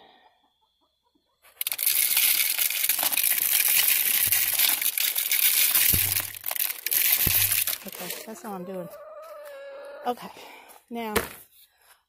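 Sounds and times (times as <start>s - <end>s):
grain pouring into plastic container: 1.6s - 8.4s.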